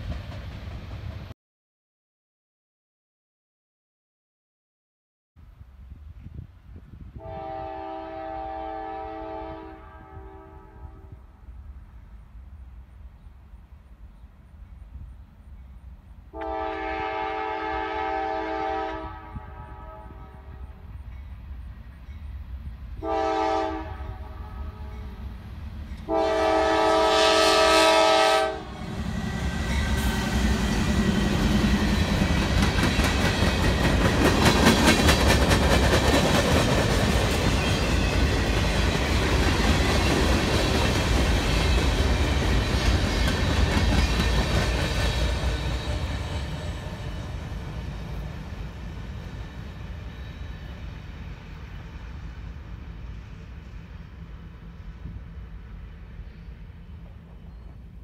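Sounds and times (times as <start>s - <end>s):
train horn chord: 7.2s - 11.4s, 16.3s - 20.8s, 23.0s - 25.3s, 26.0s - 30.6s
locomotives rumbling past: 28.0s - 52.8s.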